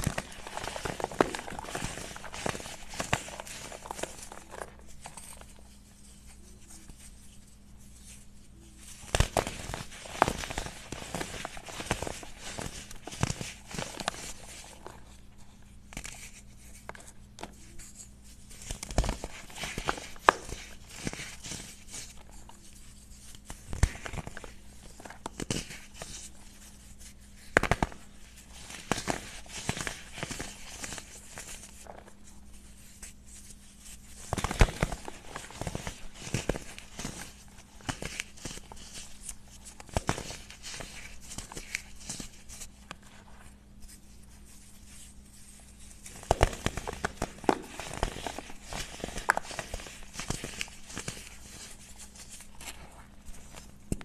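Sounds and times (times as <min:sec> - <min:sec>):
hands crushing chalk: 0:00.0 - 0:04.8, 0:09.0 - 0:15.1, 0:15.9 - 0:54.0
powder rustling: 0:00.0 - 0:15.6, 0:23.9 - 0:54.0.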